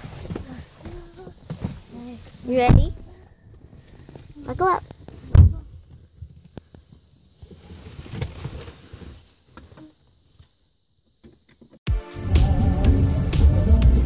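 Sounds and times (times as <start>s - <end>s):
thump: 2.6s - 3.1s, 5.3s - 5.8s
rustling of seat belt: 5.7s - 9.8s.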